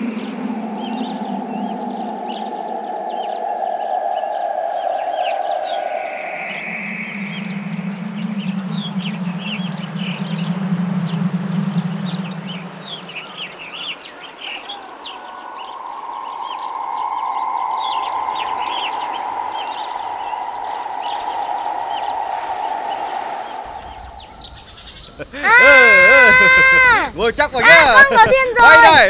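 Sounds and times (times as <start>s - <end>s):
mid-pitched drone: 0.0s - 24.9s
background hiss: 0.0s - 29.0s
small birds chirping: 4.2s - 26.0s.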